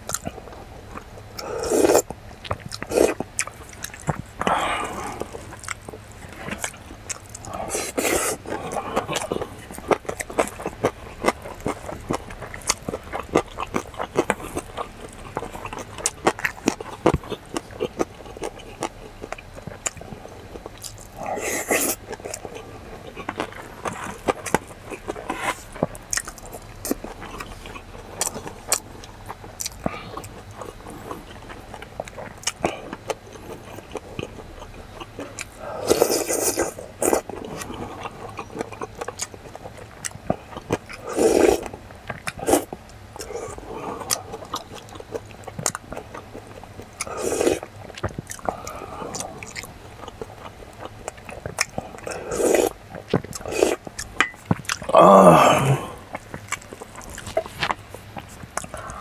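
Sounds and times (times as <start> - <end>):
wet chewing and mouth clicks: 0.0 - 59.0
loud slurps: 1.4 - 2.0, 7.5 - 8.8.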